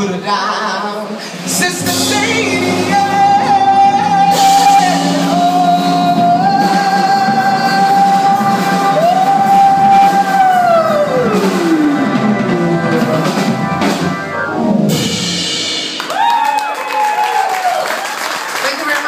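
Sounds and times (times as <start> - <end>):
woman singing: 0.0 - 11.5
live band playing: 0.0 - 19.0.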